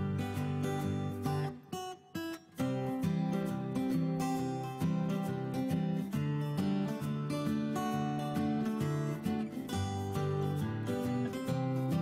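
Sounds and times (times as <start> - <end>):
plucked acoustic guitar tune: 0.0 - 12.0.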